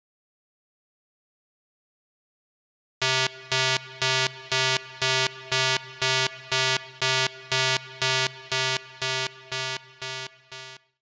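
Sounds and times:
pulsing buzzy synthesizer tone: 3.0s - 10.8s.

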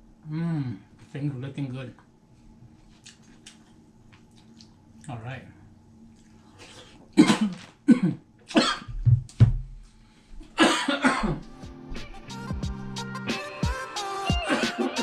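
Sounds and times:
man coughing hard: 7.2s - 9.0s, 10.6s - 11.5s.

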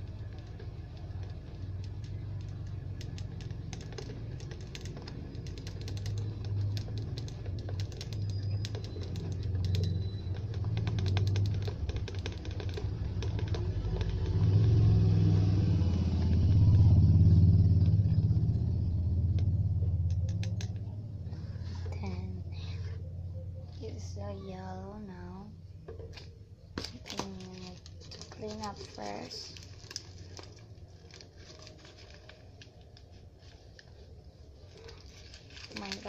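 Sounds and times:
plastic bottle crackling and clicking: 0.0s - 14.9s, 25.9s - 33.2s, 34.8s - 36.0s
low rumble: 12.8s - 36.0s.

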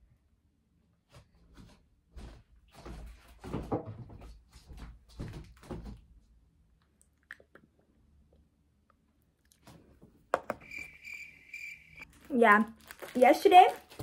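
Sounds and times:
footsteps on floor: 1.1s - 6.1s.

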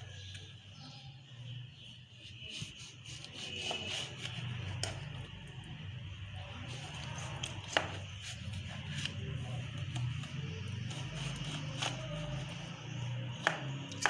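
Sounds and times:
knife cutting through orange: 2.4s - 5.1s, 6.6s - 12.7s.

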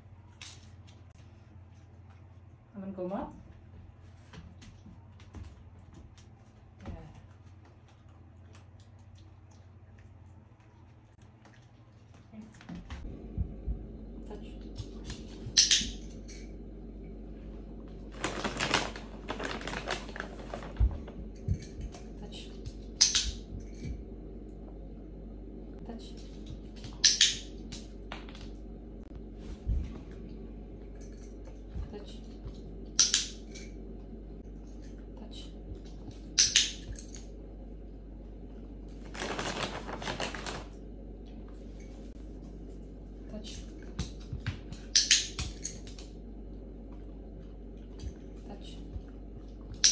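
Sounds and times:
crackly rustling: 16.2s - 24.7s, 38.0s - 44.9s.

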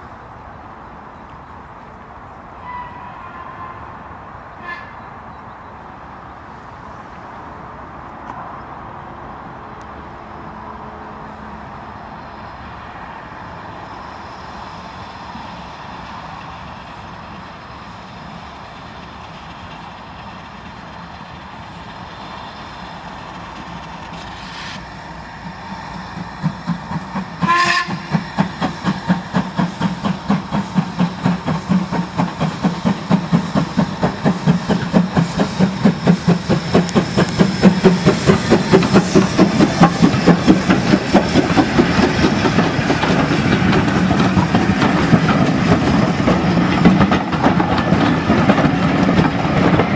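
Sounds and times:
steam whistle blast: 2.6s - 3.8s, 27.4s - 28.2s
steam locomotive exhaust beats: 13.2s - 49.9s.

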